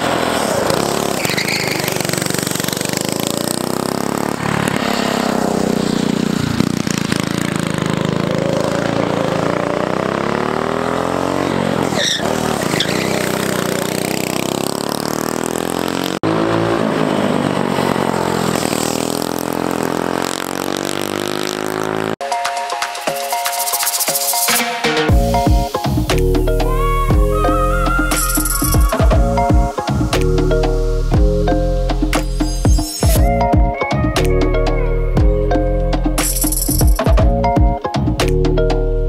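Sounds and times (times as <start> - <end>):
go-kart engine revving: 0.0 - 22.2.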